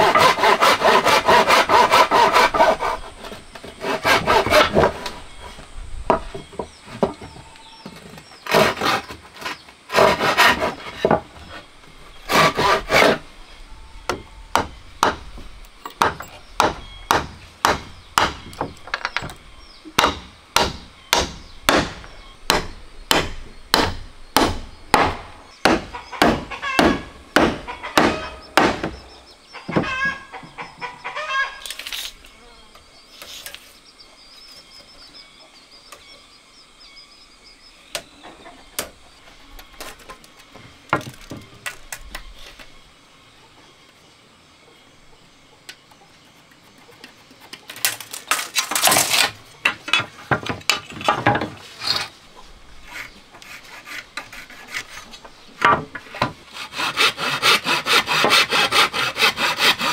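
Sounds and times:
handsaw cutting wood: 0.0s - 5.1s, 8.5s - 11.1s, 12.3s - 13.2s, 52.8s - 55.2s, 56.5s - 59.9s.

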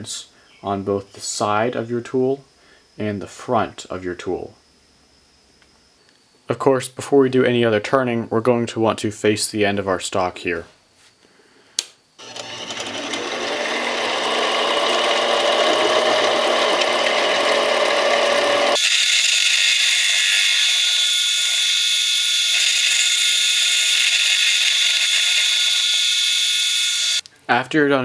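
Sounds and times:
lathe motor whine: 12.2s - 27.2s.

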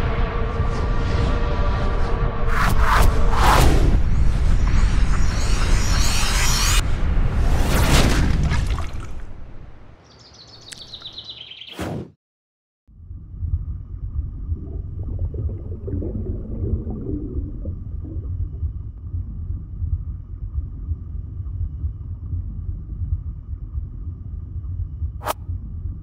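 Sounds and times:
rough gurgling sound: 7.8s - 9.7s, 14.4s - 19.0s
steady low rumble: 12.9s - 26.0s.

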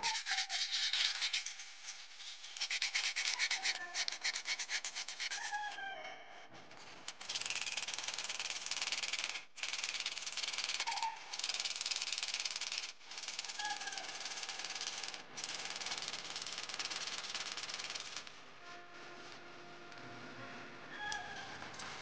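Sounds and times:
sandpaper rubbing on metal: 0.0s - 5.7s.

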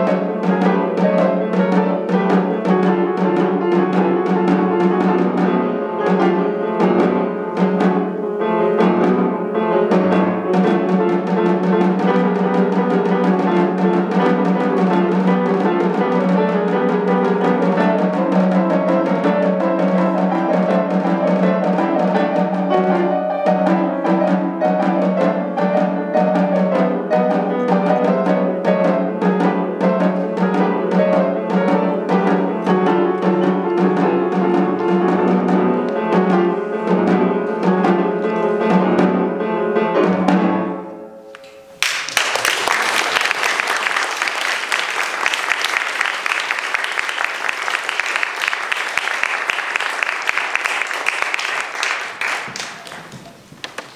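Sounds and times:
snare drum: 0.0s - 8.2s, 8.8s - 39.3s
grand piano: 0.0s - 53.9s
audience applause: 41.8s - 53.3s.

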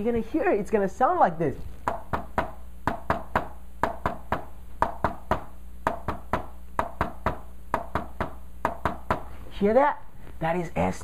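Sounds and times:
taps on a whiteboard: 1.8s - 9.3s.

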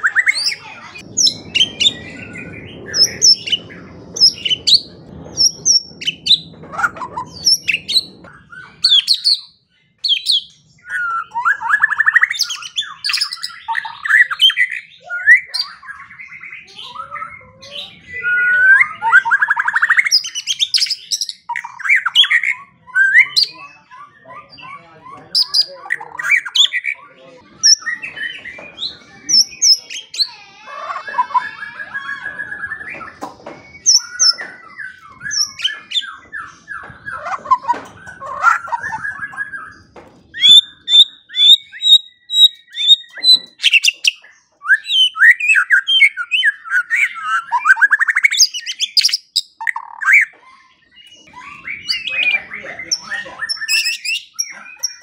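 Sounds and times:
bird singing loud whistles: 31.1s - 37.6s, 40.4s - 50.3s.

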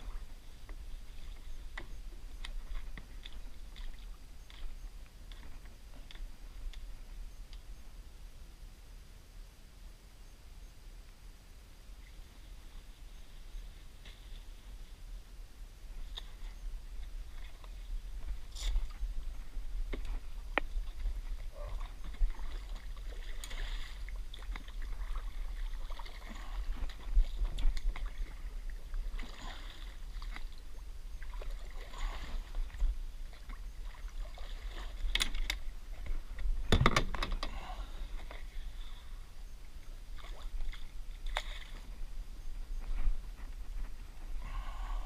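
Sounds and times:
water lapping against hull: 0.0s - 7.3s, 15.9s - 45.0s
wind on microphone: 14.4s - 45.0s
fishing gear clicks and knock: 35.0s - 35.6s, 36.4s - 37.5s.

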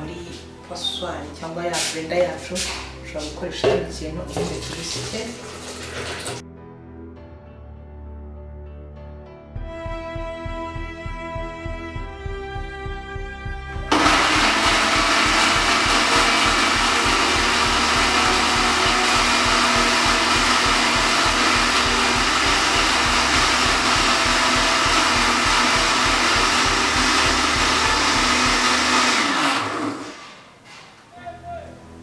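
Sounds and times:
electric blender running: 5.3s - 6.4s, 13.9s - 30.4s.

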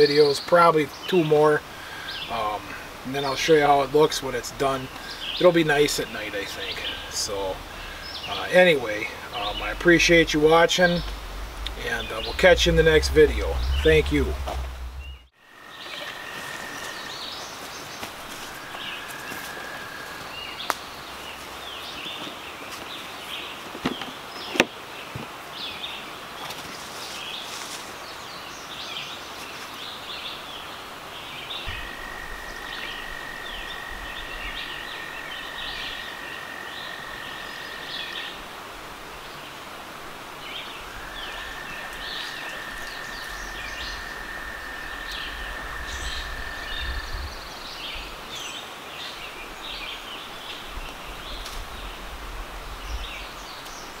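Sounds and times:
small birds chirping: 0.0s - 16.2s, 40.4s - 52.2s
outdoor background noise: 0.0s - 54.0s
high whine with low rumble: 1.6s - 17.1s, 40.7s - 48.1s.

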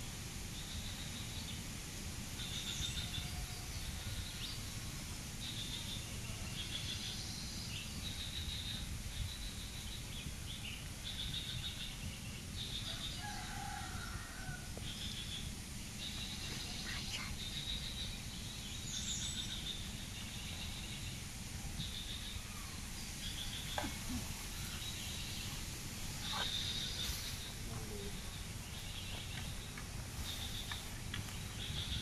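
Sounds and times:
lower animal call: 26.1s - 28.4s.

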